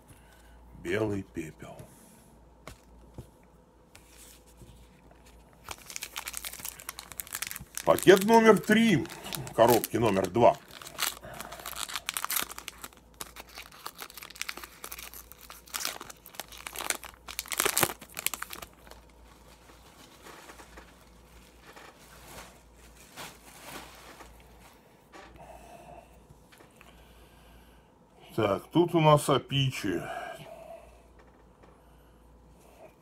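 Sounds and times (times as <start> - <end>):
cards rustling: 4.0 - 21.0
foil wrapper crinkling and tearing: 4.1 - 24.4.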